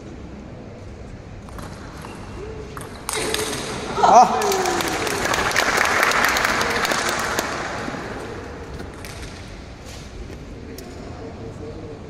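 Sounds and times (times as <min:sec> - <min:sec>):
spectators applauding: 0:04.1 - 0:08.2.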